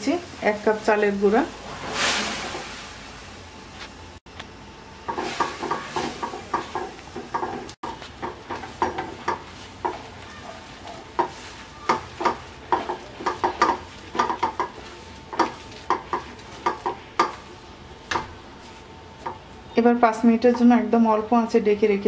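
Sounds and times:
wooden spatula scraping metal pot: 0:05.1 - 0:19.5.

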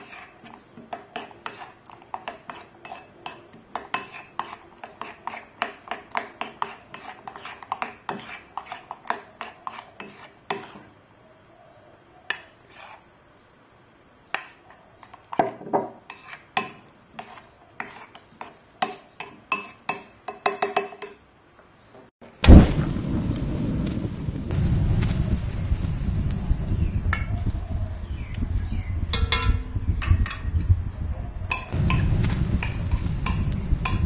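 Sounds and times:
spoon stirring batter: 0:00.0 - 0:11.0, 0:12.3 - 0:13.1, 0:14.3 - 0:15.4, 0:16.0 - 0:21.2
spoon clinking against bowl: 0:29.1 - 0:30.5.

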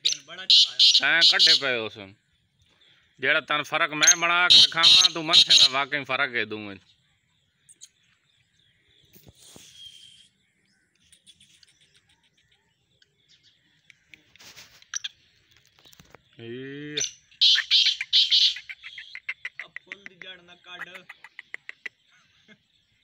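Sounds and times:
bird harsh grating call: 0:00.0 - 0:01.9, 0:04.0 - 0:06.0, 0:17.0 - 0:22.1
faint bird chirps: 0:00.0 - 0:03.4, 0:04.0 - 0:23.0.

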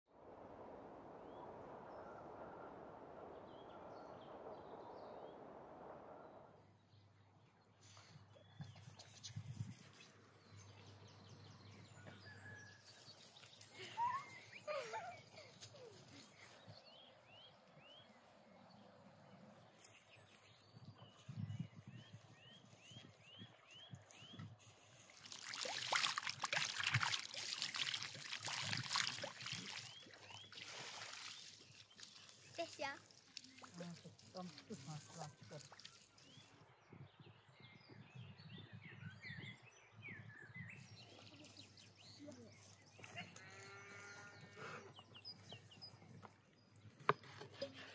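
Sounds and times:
faint bird chirps: 0:11.8 - 0:18.8, 0:35.5 - 0:46.3
hose water splashing on meat: 0:24.9 - 0:36.2.

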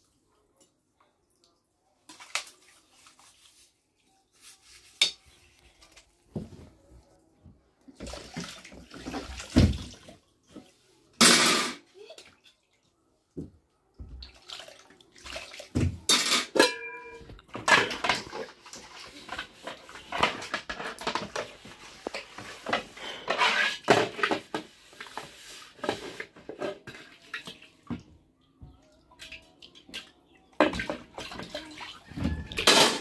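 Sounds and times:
household clatter and knocks: 0:15.8 - 0:18.6, 0:19.3 - 0:24.7, 0:32.0 - 0:33.0.

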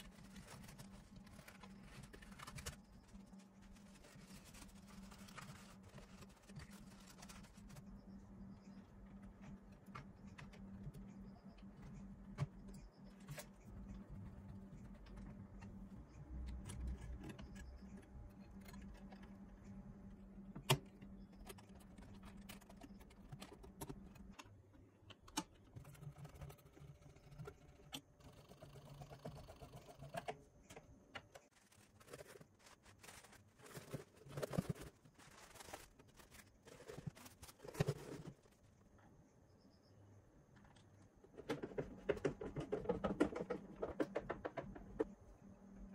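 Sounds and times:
screwdriver and plastic parts rattling: 0:31.3 - 0:38.6.

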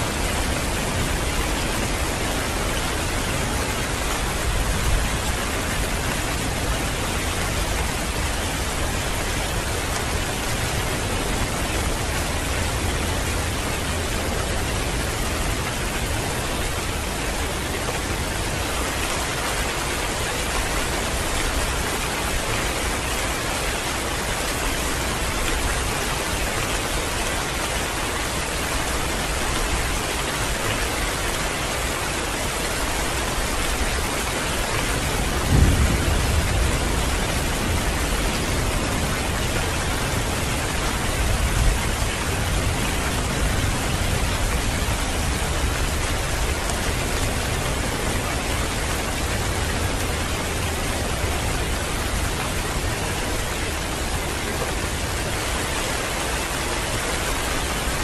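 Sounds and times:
heavy rain falling: 0:00.0 - 0:58.0
thunder rumbling: 0:35.2 - 0:50.6.

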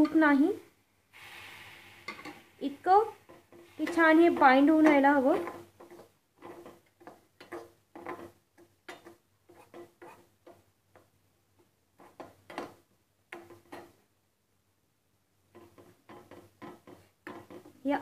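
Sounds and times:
metal spatula scraping a metal pan: 0:03.0 - 0:10.3.

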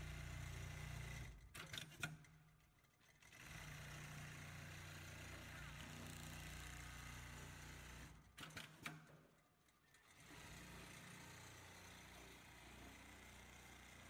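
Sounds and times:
sewing machine running: 0:03.2 - 0:08.2, 0:10.0 - 0:12.8.

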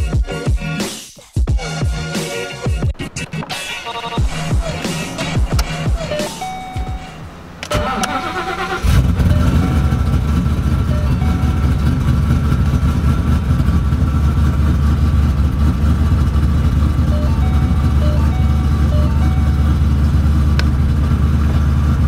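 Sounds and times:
car engine starting and idling: 0:01.6 - 0:22.0
starter motor cranking: 0:03.0 - 0:14.0.

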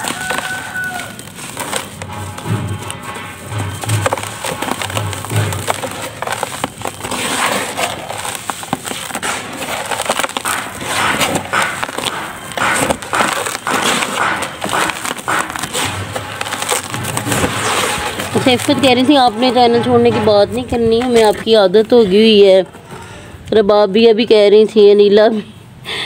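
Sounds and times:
dried mud crumbling: 0:00.0 - 0:23.8.

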